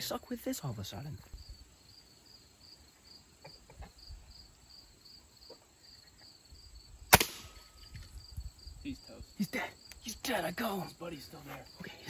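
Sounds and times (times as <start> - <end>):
crickets chirping: 0.0 - 12.0
pellet gun shot crack: 7.1 - 7.8.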